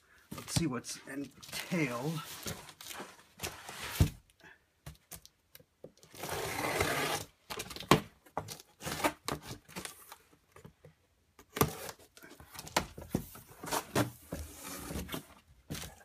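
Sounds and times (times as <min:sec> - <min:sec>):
rasping cardboard scrape: 0:06.2 - 0:07.3.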